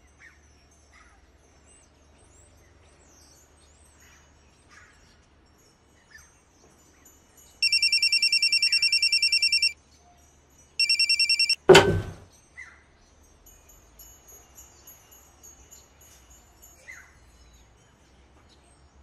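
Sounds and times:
telephone ringing: 7.6s - 9.8s, 10.8s - 12.2s
receiver clunk: 11.4s - 12.2s.

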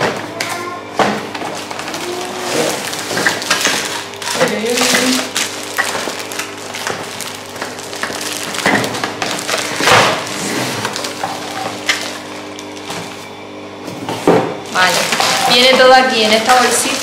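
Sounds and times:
cardboard and plastic crinkling: 1.1s - 13.4s, 14.0s - 17.0s.

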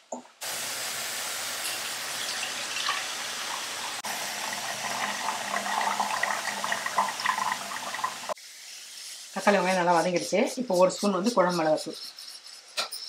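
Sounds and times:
water poured into a steel bowl: 1.5s - 8.4s.

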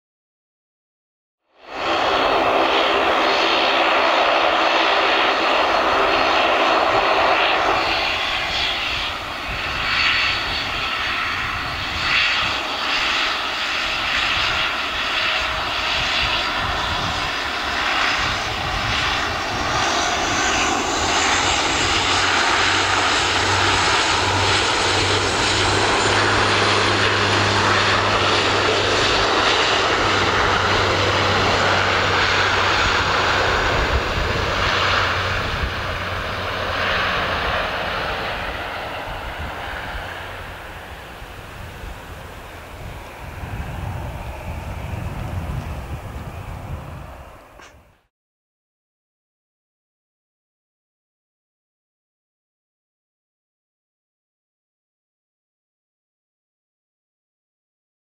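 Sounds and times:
low engine drone: 1.5s - 9.6s, 17.0s - 48.0s
propeller hum: 1.5s - 48.1s.

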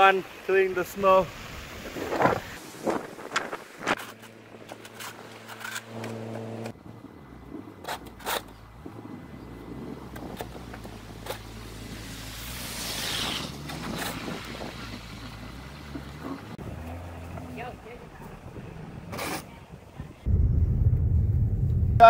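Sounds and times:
snow shovel scraping: 11.8s - 14.4s
rush of noise: 20.2s - 22.0s.

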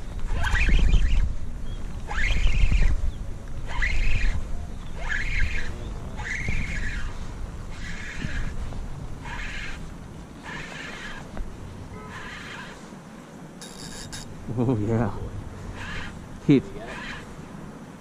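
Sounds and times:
bird crying: 2.0s - 13.0s, 15.6s - 17.5s.

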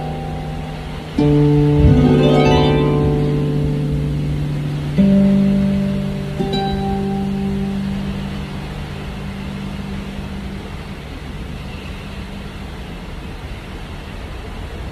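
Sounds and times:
low harp notes: 0.0s - 11.6s
boat moving at sea: 0.0s - 14.9s
wind rushing: 1.1s - 6.3s.

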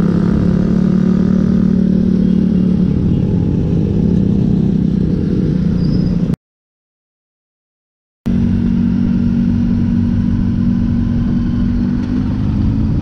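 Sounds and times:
motorcycle engine cruising: 0.0s - 6.4s, 8.3s - 13.0s.

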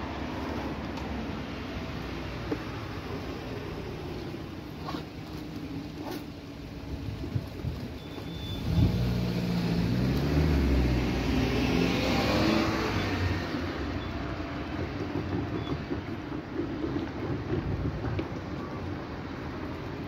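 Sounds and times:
background road traffic: 0.0s - 20.0s
tyre noise: 2.3s - 10.9s
car engine passing: 8.5s - 14.0s.

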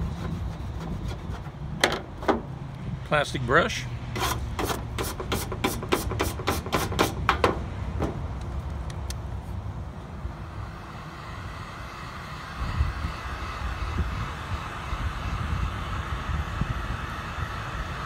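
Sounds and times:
plastic brush scrubbing: 0.0s - 1.6s.

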